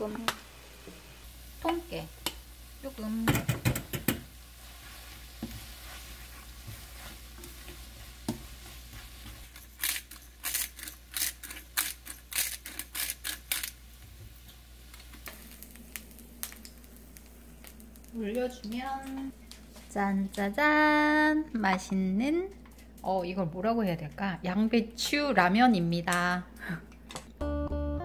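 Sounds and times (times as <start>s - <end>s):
noodles sizzling in a wok: 0.0s - 21.2s
utensils clacking against pan: 3.2s - 4.3s.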